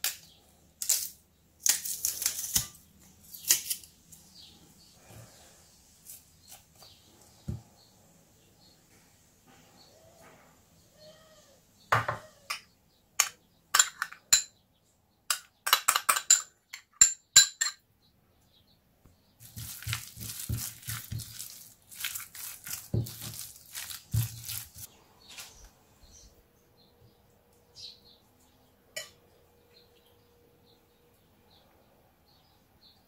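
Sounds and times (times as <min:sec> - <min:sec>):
spatula stirring wet food: 0:19.4 - 0:24.9.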